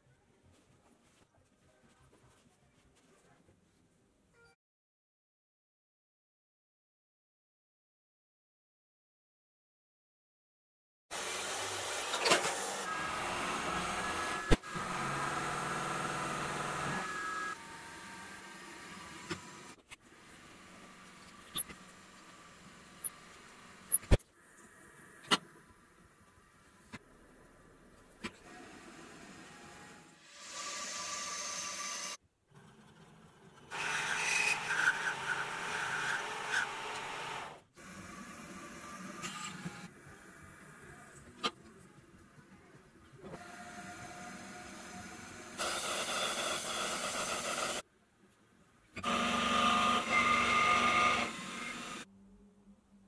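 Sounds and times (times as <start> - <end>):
bandsaw cutting metal: 33.7 - 37.5, 45.6 - 47.8, 49.0 - 52.0.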